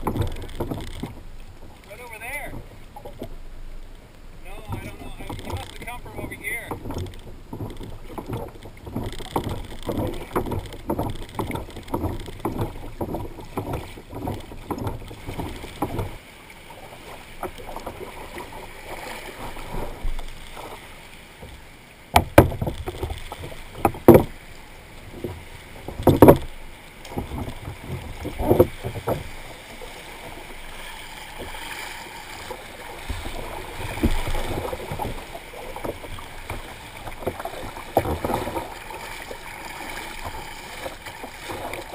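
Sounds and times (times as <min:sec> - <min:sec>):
water sloshing against kayak hull: 0:00.0 - 0:41.9
loud thumps: 0:22.1 - 0:24.4.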